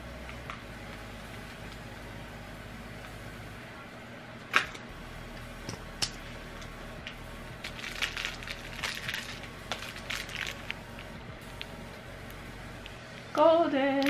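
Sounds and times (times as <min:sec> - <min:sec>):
tape crinkling and crackling: 0:05.3 - 0:14.0.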